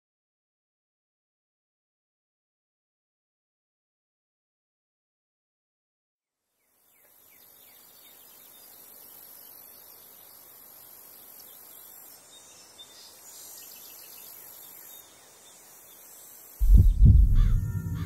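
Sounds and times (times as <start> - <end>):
high-pitched insect chorus: 7.2 - 18.0.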